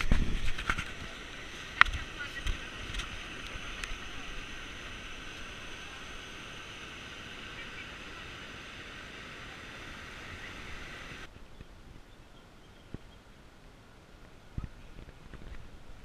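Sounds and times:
river water rushing: 0.0 - 11.3.

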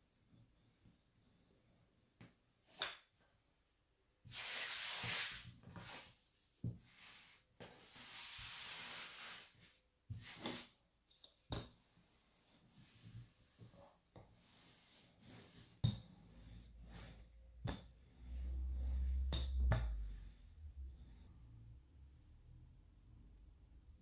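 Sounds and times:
rolling pin scraping on dough: 12.7 - 17.4.

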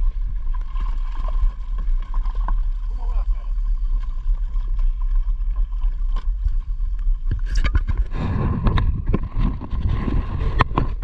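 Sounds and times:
water against boat hull: 0.0 - 11.0
wind rumbling on microphone: 0.0 - 11.0.

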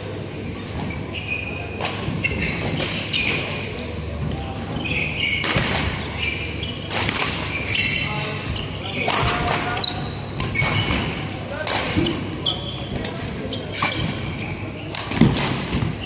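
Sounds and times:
background chatter: 0.0 - 16.0
shoes squeaking on court: 0.5 - 16.0
racket hitting shuttlecock: 5.3 - 16.0.

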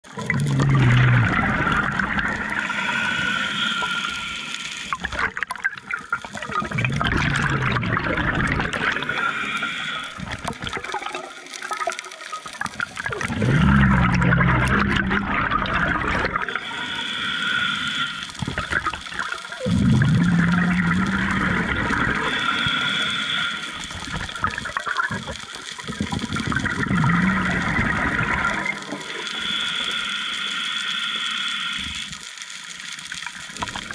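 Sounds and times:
gurgle of exhaled bubbles: 0.0 - 30.1, 33.1 - 33.9
hissing regulator inhale: 0.9 - 5.0, 8.9 - 10.5, 16.4 - 18.7, 19.7 - 24.3, 26.9 - 32.5.

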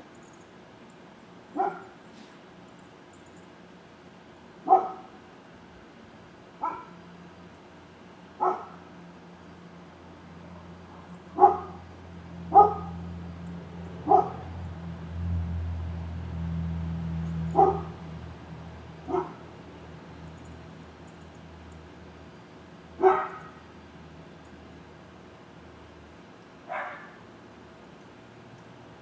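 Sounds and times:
dog barking: 1.6 - 2.0, 4.6 - 5.1, 6.6 - 7.0, 8.4 - 8.8, 11.4 - 11.8, 12.5 - 13.0, 14.0 - 14.5, 17.5 - 18.0, 19.1 - 19.4, 23.0 - 23.6, 26.7 - 27.2.

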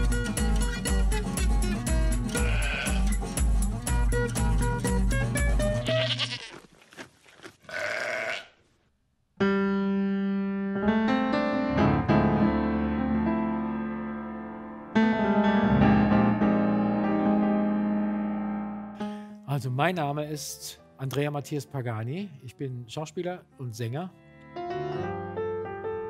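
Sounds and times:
goat bleating: 2.3 - 3.1, 5.8 - 6.7, 7.6 - 8.6
grand piano chords: 9.4 - 19.4, 24.2 - 26.0.

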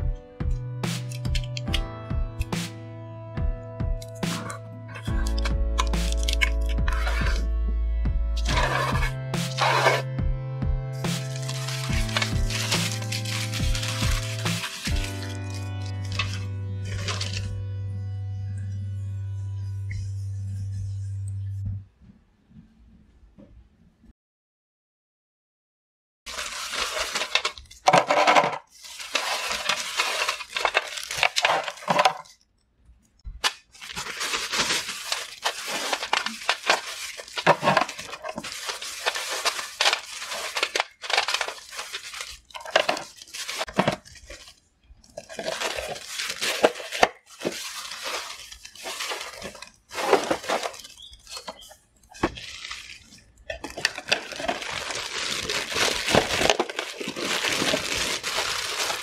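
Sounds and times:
biscuits rattling in plastic box: 8.4 - 10.0, 11.1 - 17.4, 26.3 - 32.4, 33.4 - 59.0.

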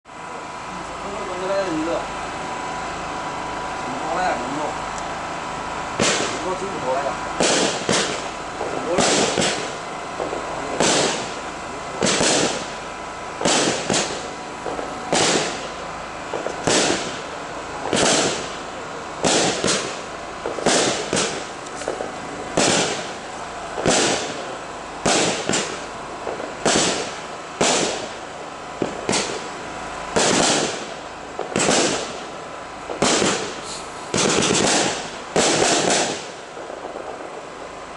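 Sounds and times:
firework shots banging: 0.4 - 37.9.

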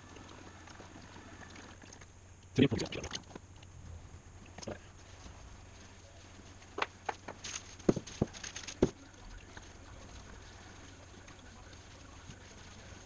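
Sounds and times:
faint low hum: 0.0 - 13.0
plastic crinkling: 4.5 - 13.0.

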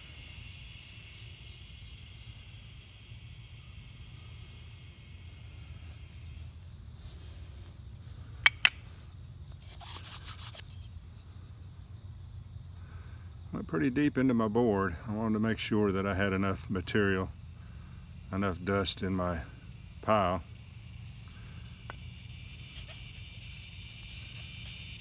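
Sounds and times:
insects chirring: 0.0 - 25.0
sharp clicks: 8.4 - 8.8
brief rustle: 9.6 - 10.9.

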